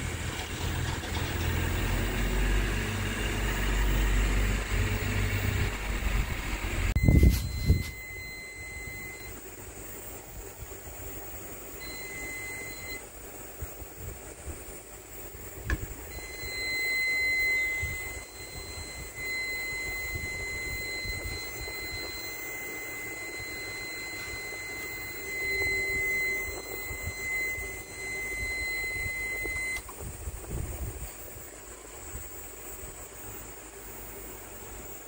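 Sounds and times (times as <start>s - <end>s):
continuous high buzzer beep: 0.6s - 9.4s, 11.8s - 13.0s, 16.0s - 29.9s.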